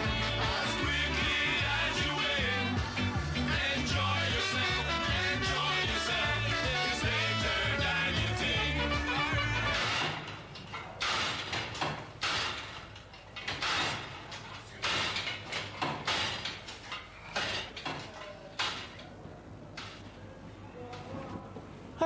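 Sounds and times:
music: 0.0 - 10.3
cubicle doors banging echoing: 9.7 - 19.0.

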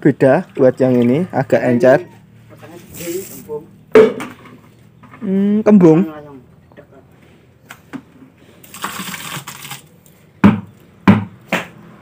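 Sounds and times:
bucket knocking on trough: 3.9 - 4.6
mash pouring into trough: 8.6 - 9.8.

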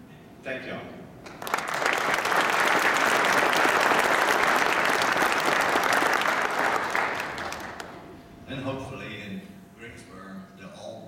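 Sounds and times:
audience applauding: 1.2 - 8.1.

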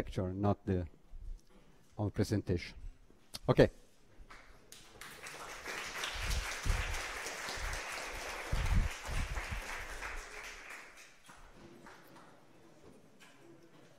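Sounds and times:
audience applauding: 4.8 - 12.1.

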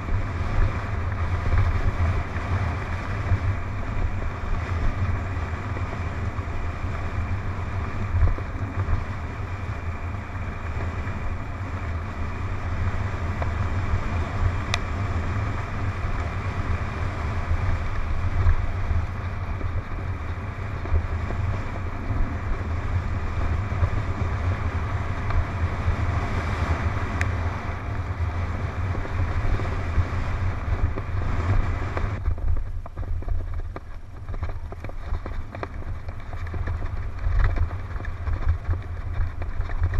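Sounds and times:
bike tyres rumbling on dirt trail: 0.0 - 39.9
wind rushing over microphone: 0.0 - 39.9.

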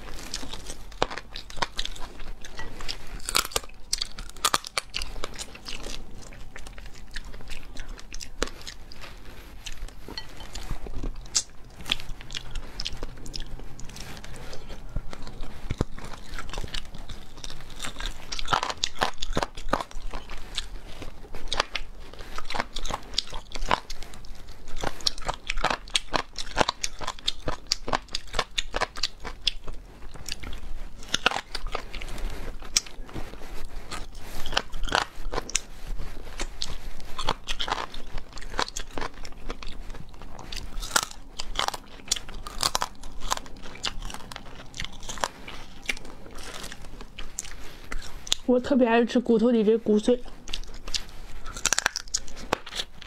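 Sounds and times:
chicken bones crunching: 0.3 - 6.0, 37.2 - 47.2, 50.6 - 53.0.

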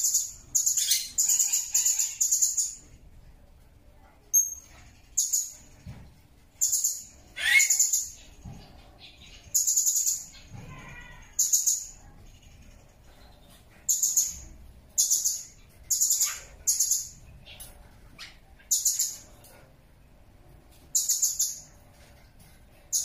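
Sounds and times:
parrot shrill chirps: 0.2 - 2.8, 6.8 - 8.2, 16.0 - 17.2.

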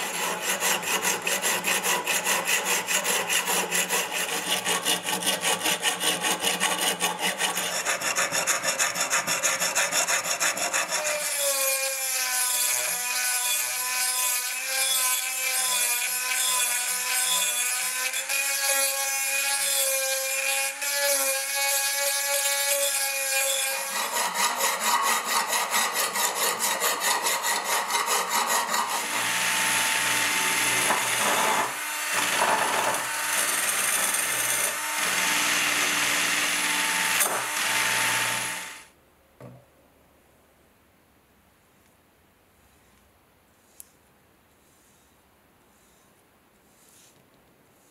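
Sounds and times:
file scraping rusty steel: 0.0 - 38.8
rotary tool grinding whine: 23.6 - 38.9
drill spinning wire brush on metal: 23.8 - 38.9.

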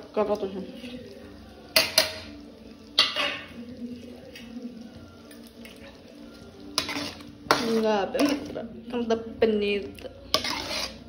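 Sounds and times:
thick gravy being stirred: 2.7 - 8.7, 9.9 - 11.0.

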